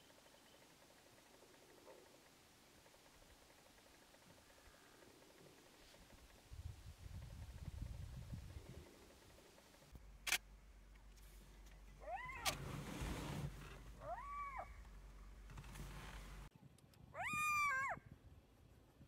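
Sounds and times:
sharp click: 0:10.2 - 0:10.5.

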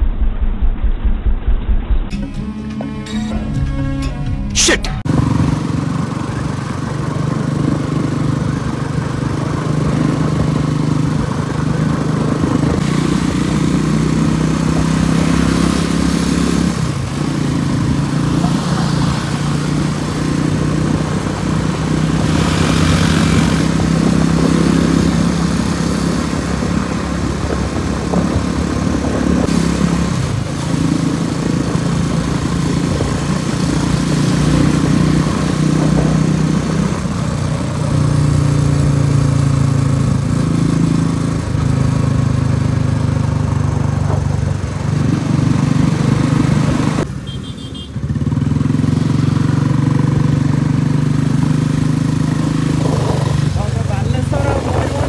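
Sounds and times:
rushing noise: 0:00.0 - 0:06.4
motorcycle engine running: 0:00.0 - 0:55.0.

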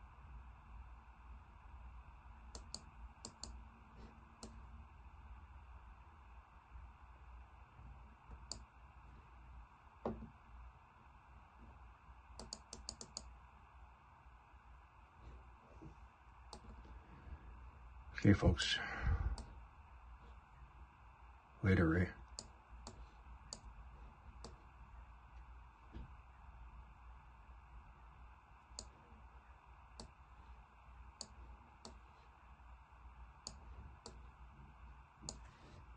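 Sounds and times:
low steady hum: 0:00.0 - 0:35.9
computer mouse clicks: 0:02.5 - 0:03.6, 0:04.4 - 0:04.6, 0:08.3 - 0:08.7, 0:12.3 - 0:13.3, 0:16.5 - 0:16.9, 0:22.3 - 0:23.7, 0:24.4 - 0:24.6, 0:28.7 - 0:29.0, 0:30.0 - 0:30.2, 0:31.2 - 0:32.1, 0:33.4 - 0:34.2, 0:35.2 - 0:35.6.

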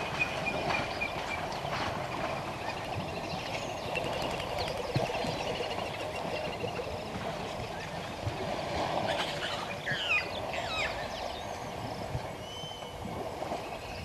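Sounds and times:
water sloshing and splashing: 0:00.0 - 0:14.0
whistled bird calls: 0:09.1 - 0:13.0.

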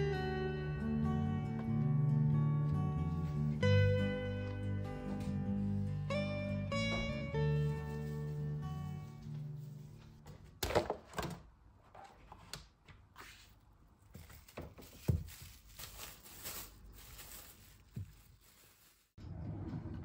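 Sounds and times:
plastic cling film crinkling: 0:14.0 - 0:19.2.

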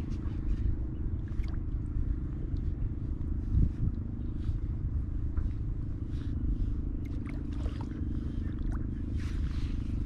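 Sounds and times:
wind rumble on microphone: 0:00.0 - 0:10.0
water lapping: 0:06.0 - 0:10.0.

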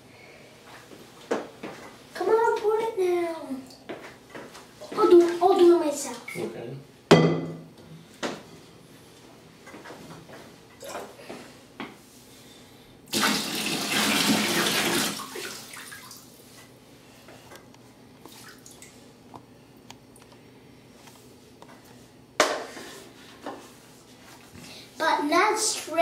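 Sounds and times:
water pouring into bathtub: 0:13.1 - 0:16.4.

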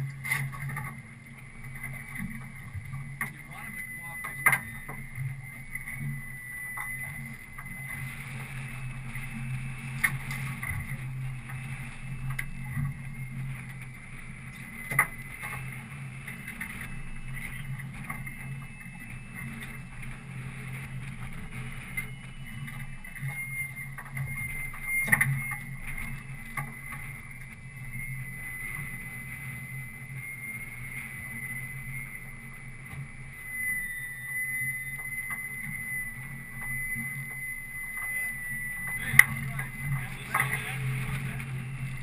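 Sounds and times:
boat motor running: 0:00.0 - 0:42.0.

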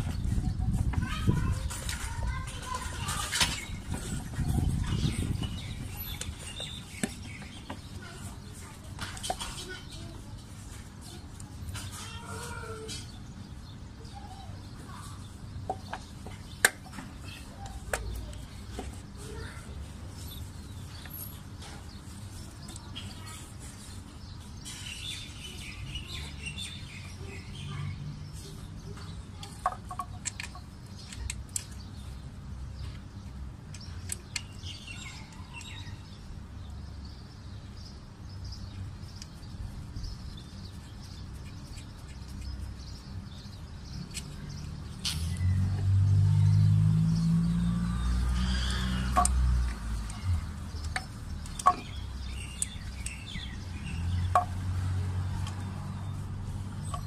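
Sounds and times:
birds chirping: 0:00.0 - 0:57.0.

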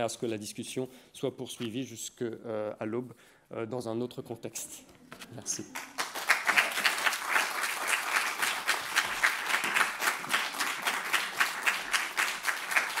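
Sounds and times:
audience applauding: 0:05.7 - 0:13.0.

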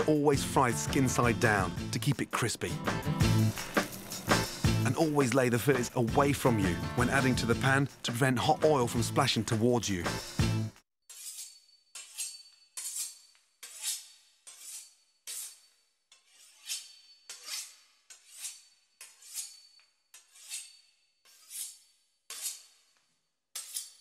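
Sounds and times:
knife sawing through crisp pastry: 0:11.1 - 0:24.0.

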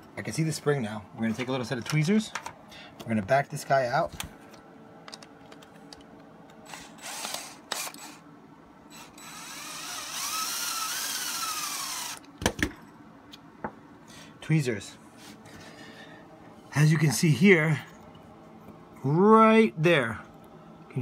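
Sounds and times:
power drill whining: 0:06.7 - 0:08.2, 0:08.9 - 0:12.2.

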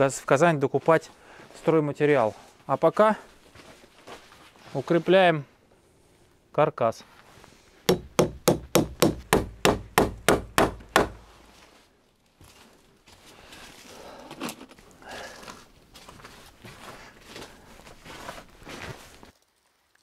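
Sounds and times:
hammer driving nails into wood: 0:07.9 - 0:11.3.

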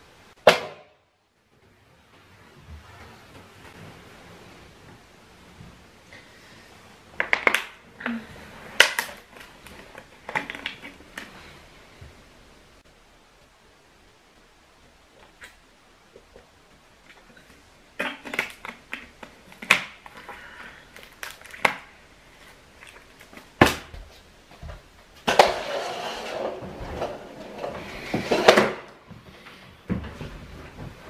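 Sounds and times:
plastic bottle crackling: 0:08.8 - 0:11.3, 0:17.1 - 0:23.8.

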